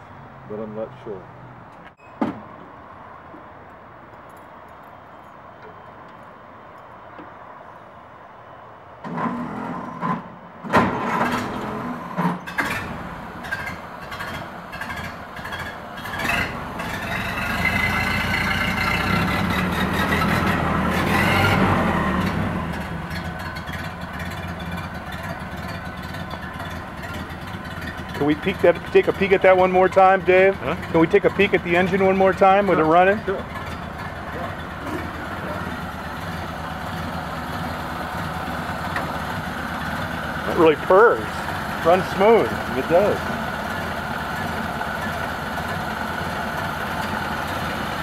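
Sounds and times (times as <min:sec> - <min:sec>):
thump: 0:02.2 - 0:02.5
engine starter cranking: 0:10.7 - 0:17.8
car engine revving and idling: 0:11.0 - 0:48.0.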